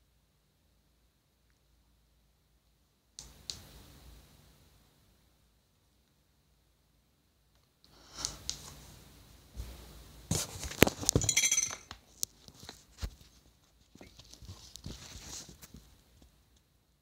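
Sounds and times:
faint rustling: 0:12.0 - 0:16.4.

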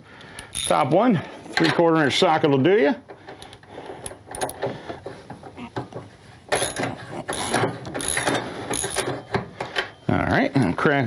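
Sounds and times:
hand ratchet clicking: 0:06.5 - 0:09.1.

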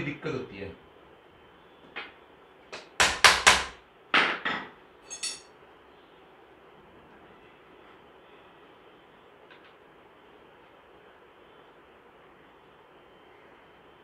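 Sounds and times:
metal tubes knocking and clinking: 0:04.4 - 0:05.5
short metallic ring: 0:05.1 - 0:05.5.

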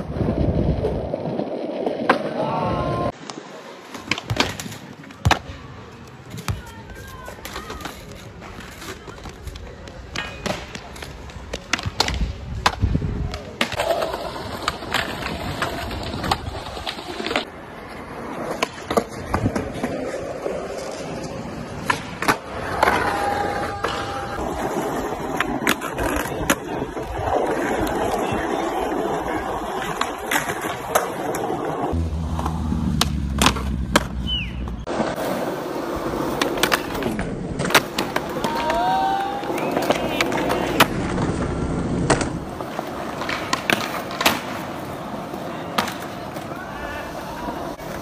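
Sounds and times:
skateboard wheels rolling on concrete: 0:00.0 - 0:48.0
skateboard pops and landing clacks: 0:01.9 - 0:02.4, 0:03.2 - 0:05.6, 0:07.4 - 0:17.5, 0:21.8 - 0:23.2, 0:32.3 - 0:35.4, 0:36.3 - 0:44.9, 0:45.7 - 0:46.5.

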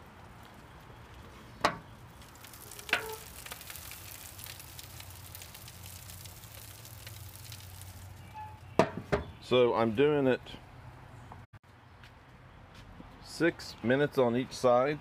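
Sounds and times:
burgers sizzling on a grill: 0:00.0 - 0:08.4.

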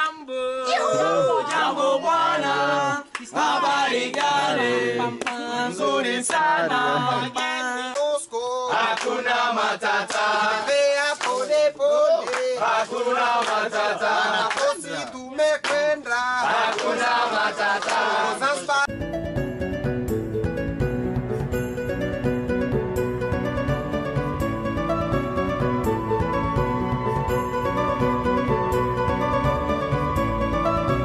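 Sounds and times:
men singing together: 0:01.0 - 0:18.9.

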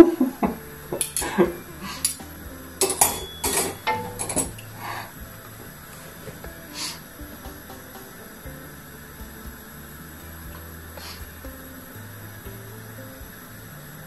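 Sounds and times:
metal utensils clinking on pot: 0:02.8 - 0:04.7.

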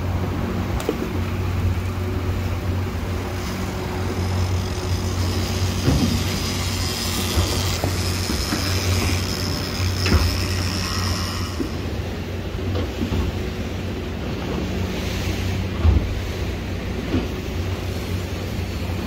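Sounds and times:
boat engine humming: 0:00.0 - 0:19.0
water rushing along hull: 0:00.0 - 0:19.0.

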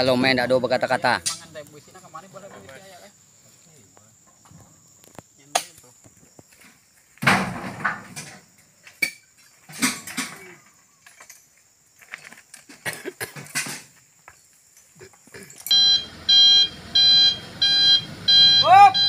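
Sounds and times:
fruit bunches thudding into metal bed: 0:07.2 - 0:08.4.

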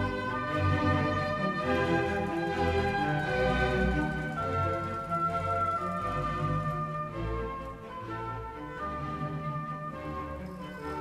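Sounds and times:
instrumental music with held notes: 0:00.0 - 0:11.0.

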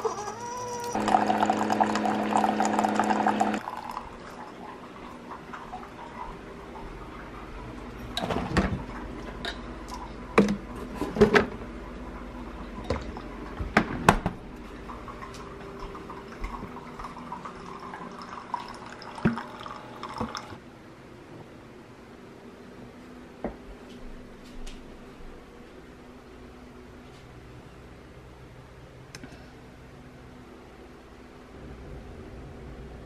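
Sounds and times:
faint steady hum: 0:00.0 - 0:33.0
liquid pouring: 0:00.9 - 0:06.3, 0:14.8 - 0:20.6.

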